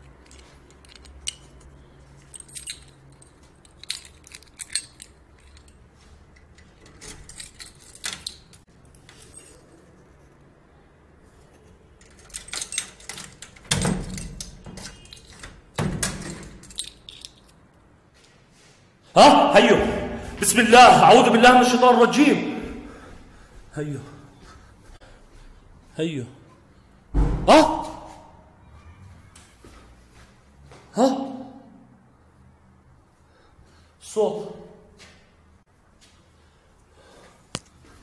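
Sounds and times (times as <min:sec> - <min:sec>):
door latch rattling and clicking: 0:12.0 - 0:16.8.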